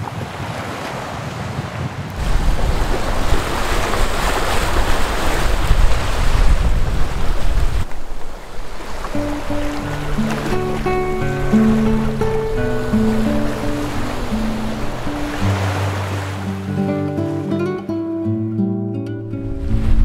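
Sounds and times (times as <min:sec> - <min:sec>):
wind buffeting microphone: 0:00.0 - 0:16.7, 0:19.4 - 0:20.0
water rushing along boat hull: 0:00.0 - 0:17.8.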